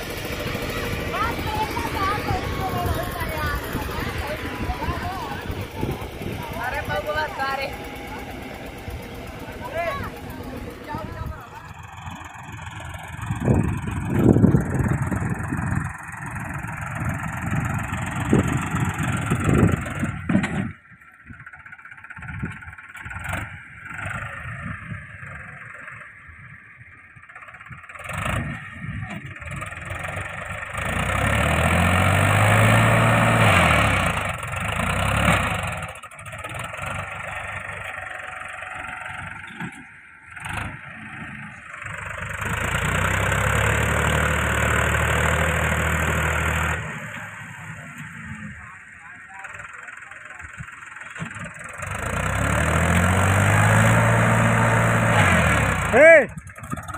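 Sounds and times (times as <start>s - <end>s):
tractor engine labouring: 0.0s - 56.9s.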